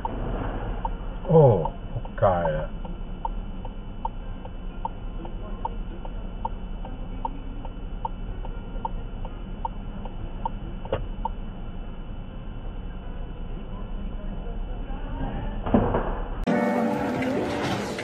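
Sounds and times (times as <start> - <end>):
turn signal ticking: 0.0 - 11.4
low steady hum: 0.0 - 18.0.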